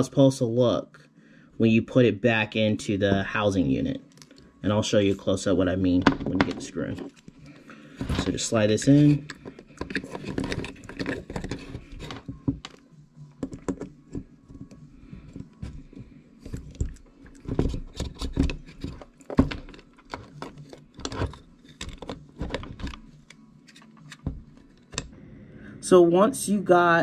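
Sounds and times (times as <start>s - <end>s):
small parts clicking and knocking: 16.4s - 25.1s.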